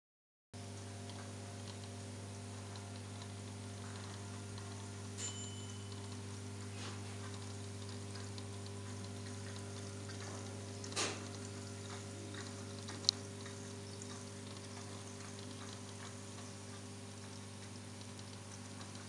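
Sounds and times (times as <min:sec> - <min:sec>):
air pump humming: 0:00.6 - 0:19.0
faint bubbling and ticking: 0:00.7 - 0:05.2, 0:05.9 - 0:19.0.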